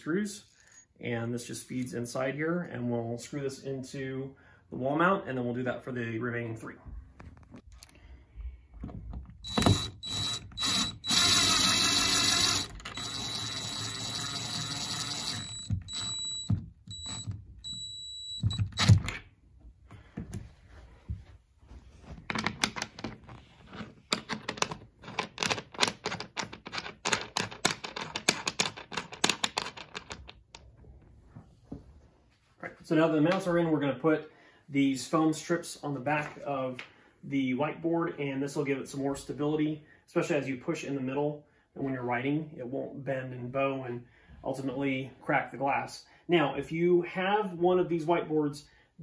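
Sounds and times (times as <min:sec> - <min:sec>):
cordless driver whining: 0:09.4 - 0:19.2
metal parts clicking and tapping: 0:22.3 - 0:30.6.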